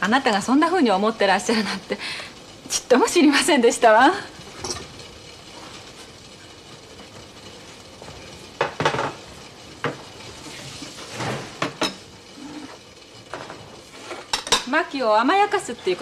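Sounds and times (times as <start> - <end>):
dishes and cutlery clinking: 4.6 - 4.9, 11.1 - 14.7.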